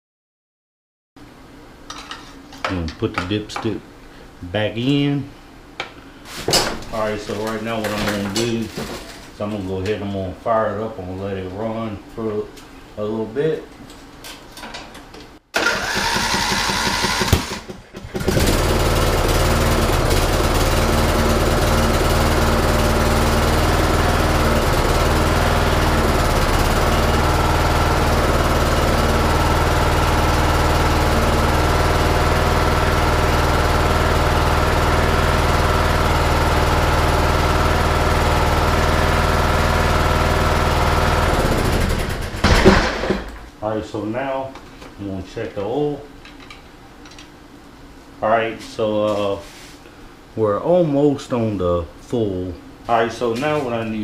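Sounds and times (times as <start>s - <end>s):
mower engine running: 15.6s - 42.5s.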